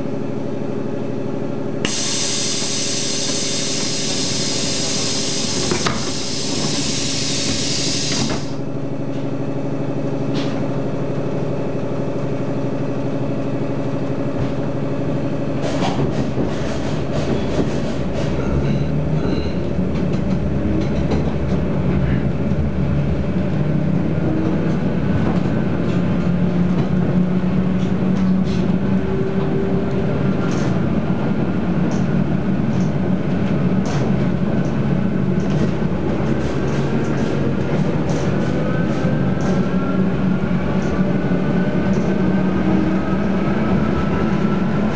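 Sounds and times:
train wheels rumbling: 0:13.8 - 0:44.9.

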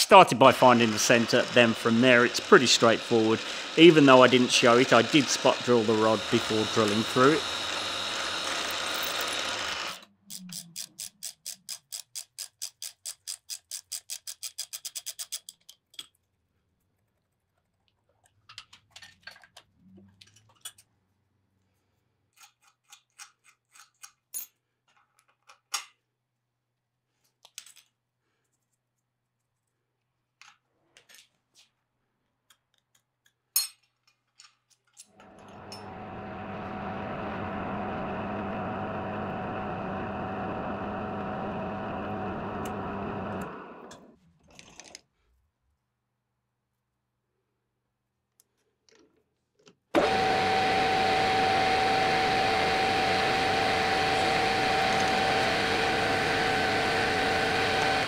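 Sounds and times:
drill press drilling steel: 0:00.1 - 0:10.1, 0:35.2 - 0:44.1, 0:50.0 - 0:58.0
machine running steadily: 0:00.4 - 0:10.0, 0:50.0 - 0:58.0
small metal parts tapping: 0:10.3 - 0:16.3.

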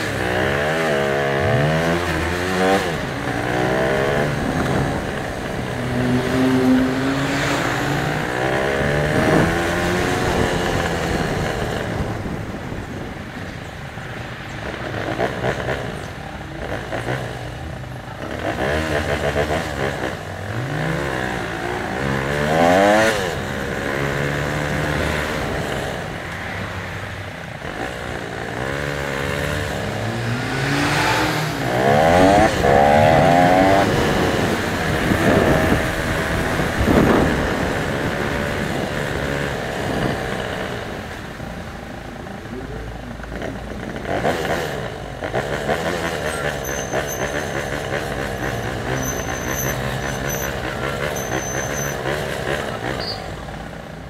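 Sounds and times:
motorcycle engine accelerating: 0:00.0 - 0:13.2, 0:27.5 - 0:41.8, 0:42.4 - 0:54.0.

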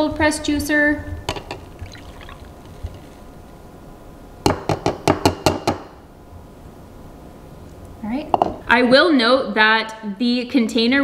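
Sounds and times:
juice pouring into a glass: 0:01.6 - 0:03.4.

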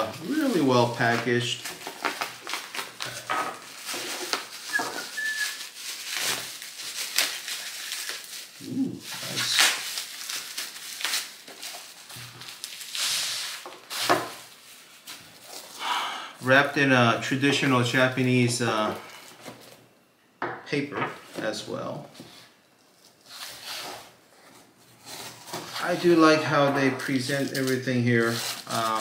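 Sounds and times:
bubble wrap crinkling: 0:00.0 - 0:15.8, 0:22.8 - 0:29.0.

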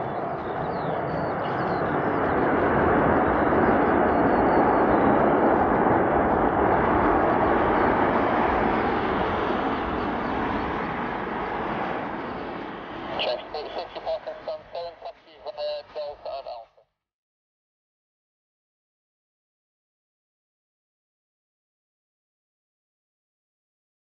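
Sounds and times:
jet engines roaring: 0:00.0 - 0:16.6.

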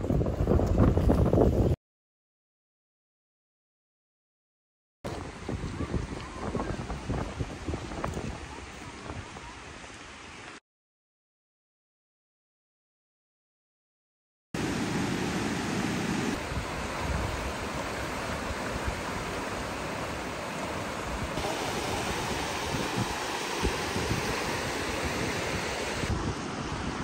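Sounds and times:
wind buffeting microphone: 0:00.0 - 0:01.8, 0:05.1 - 0:09.4, 0:16.3 - 0:27.0.

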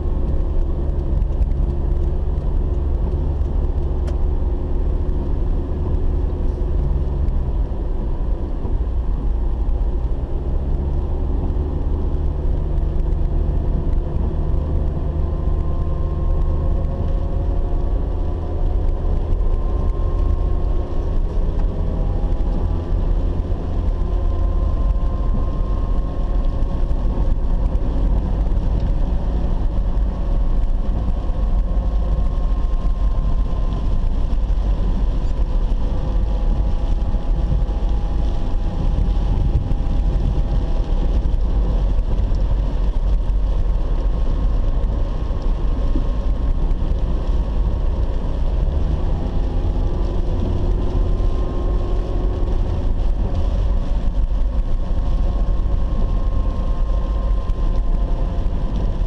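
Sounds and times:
car engine and road noise: 0:00.0 - 0:59.0.

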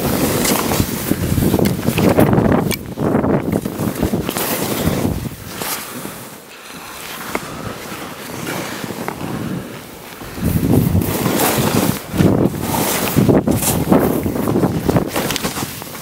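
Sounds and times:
wind rushing over microphone: 0:00.0 - 0:06.3, 0:07.3 - 0:16.0
skis hissing through snow: 0:03.8 - 0:16.0.

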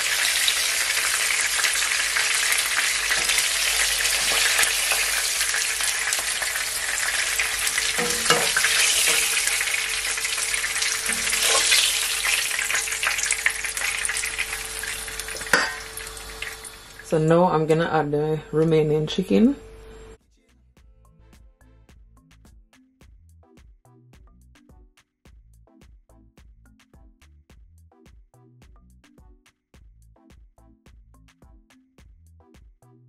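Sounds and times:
chicken sizzling in hot oil: 0:00.0 - 0:17.7.

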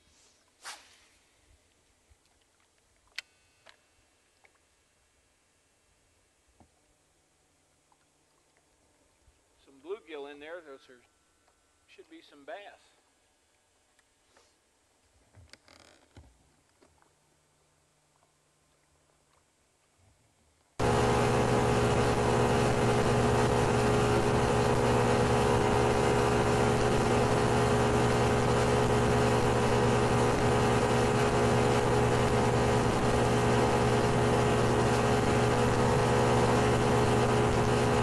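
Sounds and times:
outboard motor running: 0:20.8 - 0:38.0.

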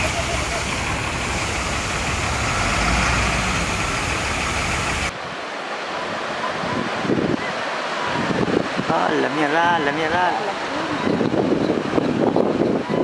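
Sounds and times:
diesel engine rumbling: 0:00.0 - 0:05.1
steady hiss: 0:00.0 - 0:05.1.

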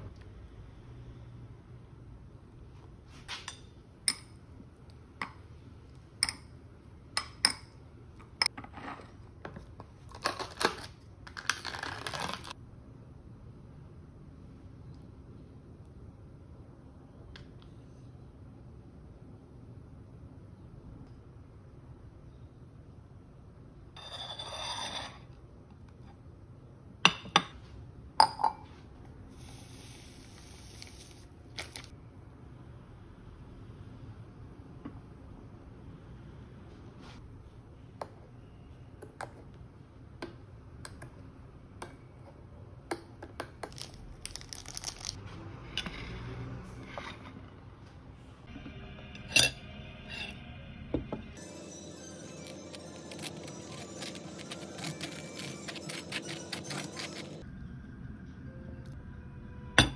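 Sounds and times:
glass scraping on counter: 0:24.0 - 0:25.3, 0:45.8 - 0:47.4, 0:52.2 - 0:57.4
powder pouring hiss: 0:29.4 - 0:31.9
spoon clinking on glass: 0:51.5 - 0:57.4.

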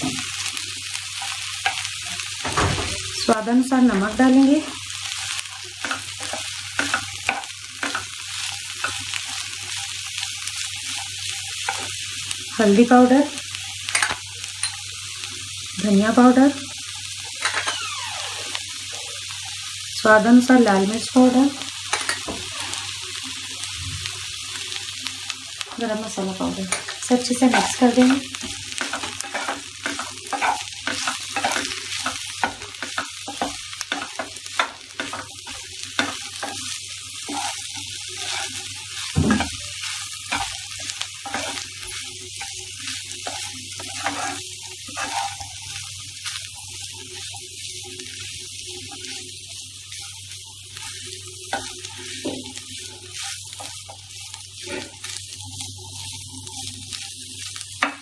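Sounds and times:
food sizzling: 0:00.0 - 0:58.0
wooden spatula scraping a pan: 0:37.2 - 0:39.6, 0:43.2 - 0:45.6, 0:54.6 - 0:55.1.

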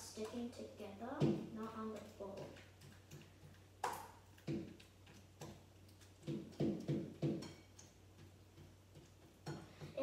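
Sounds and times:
slime squelching: 0:00.0 - 0:10.0.

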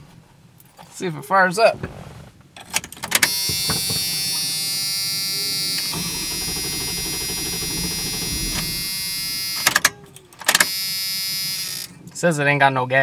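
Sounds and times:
starter motor cranking engine: 0:02.8 - 0:11.9
sharp starter clicks: 0:05.7 - 0:10.8.

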